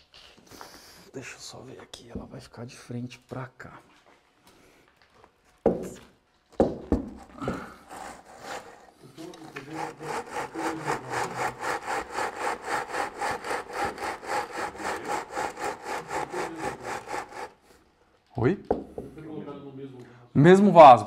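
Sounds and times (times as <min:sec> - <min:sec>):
sharp knocks: 0:06.6 - 0:07.7
hand tool scraping: 0:07.0 - 0:17.8.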